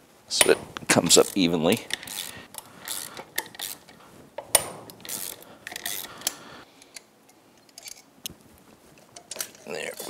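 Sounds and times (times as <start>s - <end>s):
metal tool handling: 0.4s - 6.4s
socket ratchet clicking: 0.4s - 6.4s.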